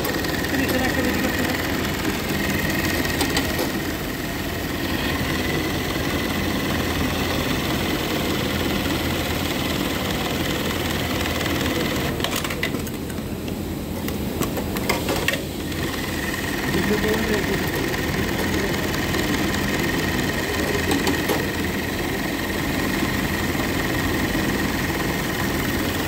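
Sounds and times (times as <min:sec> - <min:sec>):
sewing machine whine and hum: 0:00.0 - 0:26.0.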